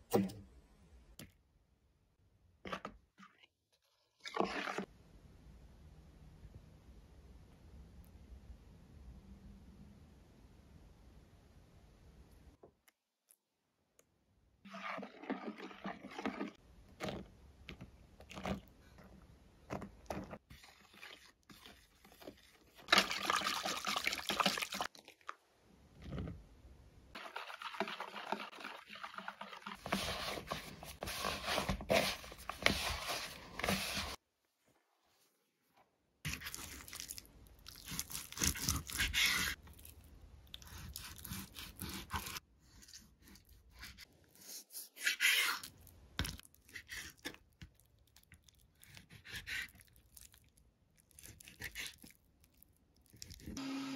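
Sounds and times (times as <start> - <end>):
hands kneading soft dough: 25.9 - 53.6
fork stirring in plastic bowl: 27.2 - 34.2.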